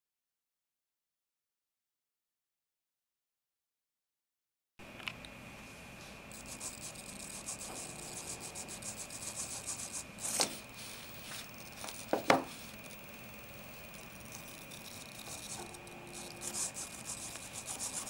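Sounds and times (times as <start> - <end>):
faint high motor whine: 4.8 - 18.0
gear fast gritty ticking: 11.4 - 18.0.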